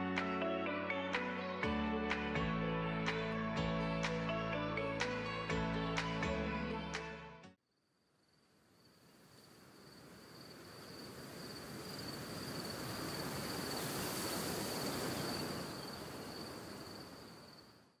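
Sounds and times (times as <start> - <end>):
high insect trill: 7.7 - 18.0
wind-like rushing noise: 10.1 - 17.5.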